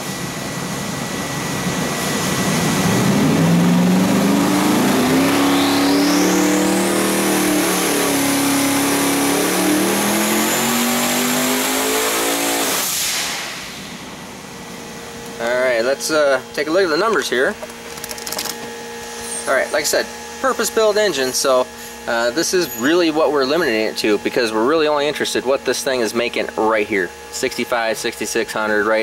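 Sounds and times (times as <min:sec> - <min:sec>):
turbo whine: 0:00.0 - 0:29.0
engine revving at full throttle: 0:01.1 - 0:17.5.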